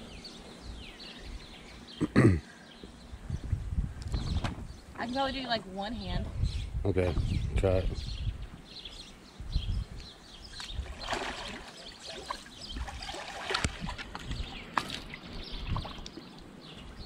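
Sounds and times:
water splashing and sloshing: 0:10.6 - 0:17.0.

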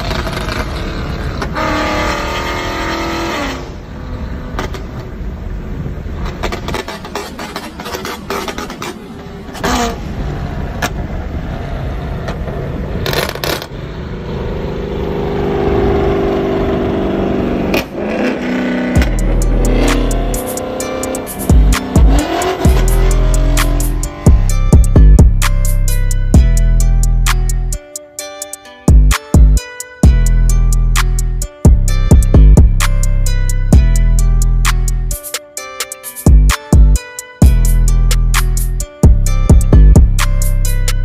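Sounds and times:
car engine revving: 0:00.0 - 0:27.8.

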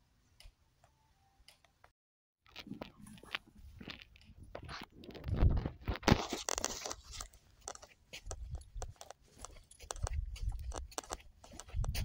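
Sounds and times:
footsteps crunching on gravel: 0:02.5 - 0:12.0
wind rumble on microphone: 0:05.2 - 0:05.9, 0:11.6 - 0:12.0.

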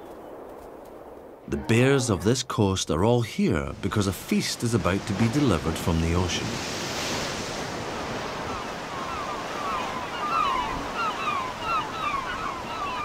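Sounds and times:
surf breaking on shore: 0:01.4 - 0:11.8
gulls calling: 0:07.9 - 0:13.0.

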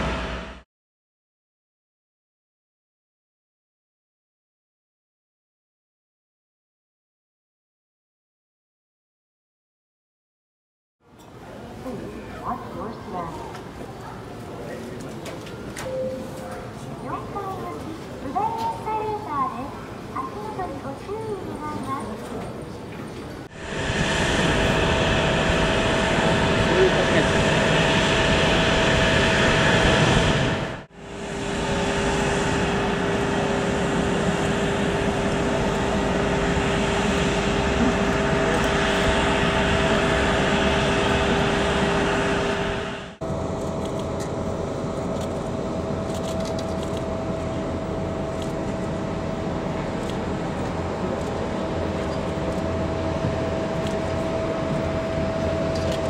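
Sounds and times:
constant whine: 0:00.0 - 0:00.6, 0:23.4 - 0:56.0
distant aircraft and vehicles: 0:11.1 - 0:56.0.

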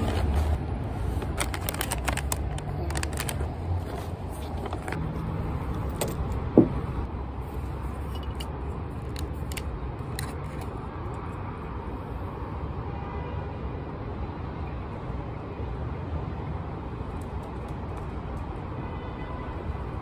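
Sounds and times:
bottle and paper bag handled: 0:00.0 - 0:05.2
city traffic rumble: 0:00.0 - 0:20.0.

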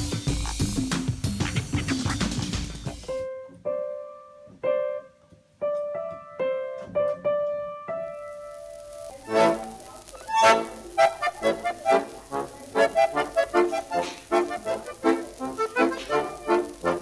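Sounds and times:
single piano notes: 0:03.1 - 0:10.1.

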